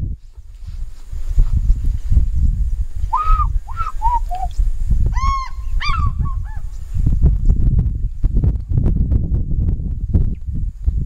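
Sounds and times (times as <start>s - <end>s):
eagle ringing yelps: 5.2s - 6.7s.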